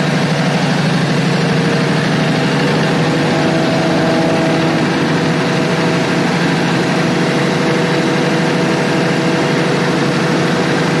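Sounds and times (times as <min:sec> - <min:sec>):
diesel generator droning: 0:00.0 - 0:11.0.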